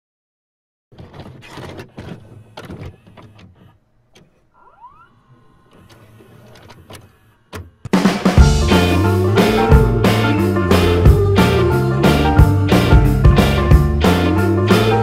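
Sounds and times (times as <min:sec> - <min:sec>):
tape mechanism clicks and clunks: 0:00.9 - 0:08.4.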